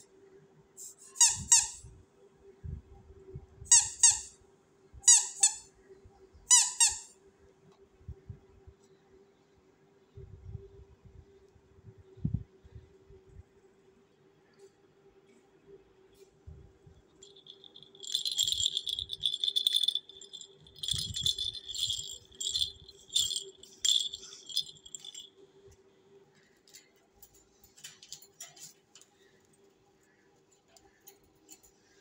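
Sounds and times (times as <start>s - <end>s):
plastic toy rattle shaken: 17.2s - 25.3s.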